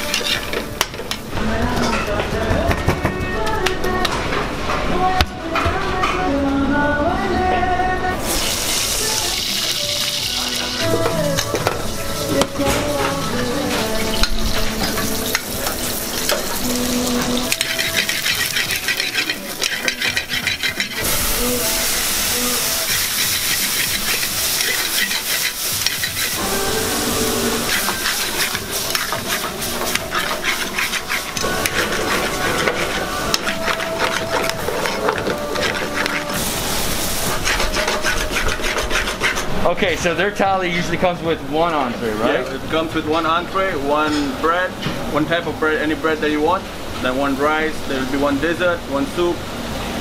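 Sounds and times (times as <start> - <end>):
metal spoon stirring: 0.0 - 1.2, 13.7 - 21.6, 22.4 - 26.4, 27.6 - 39.6
food sizzling in pans: 0.0 - 1.4, 8.2 - 40.8.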